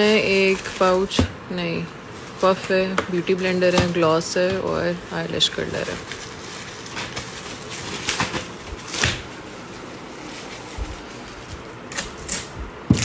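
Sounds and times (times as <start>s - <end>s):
plastic bags crinkling: 0.0s - 12.6s.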